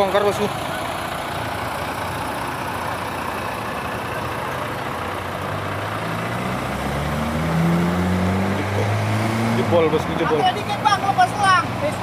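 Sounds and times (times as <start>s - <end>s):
heavy truck engine revving: 0.0s - 12.0s.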